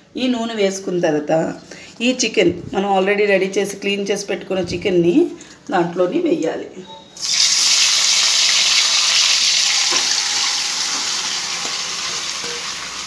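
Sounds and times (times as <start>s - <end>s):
chicken sizzling in hot oil: 7.2s - 13.0s.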